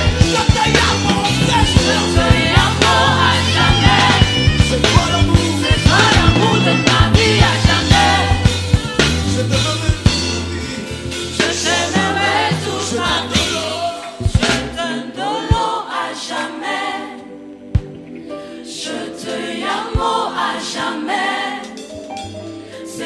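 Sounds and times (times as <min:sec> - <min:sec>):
band playing: 0:00.0 - 0:15.0
gospel choir singing: 0:00.0 - 0:23.0.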